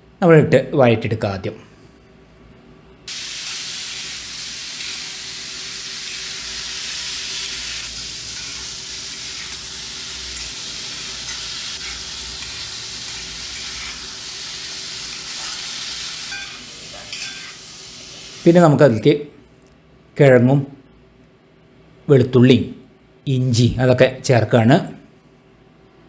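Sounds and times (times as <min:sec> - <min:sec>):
vegetables sizzling in a pan: 0:03.1 - 0:18.5
metal spatula stirring: 0:08.2 - 0:14.1.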